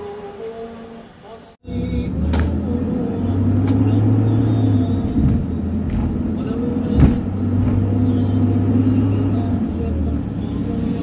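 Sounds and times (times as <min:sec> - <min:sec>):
engine and road rumble: 0:00.0 - 0:11.0
thump: 0:07.0 - 0:07.8.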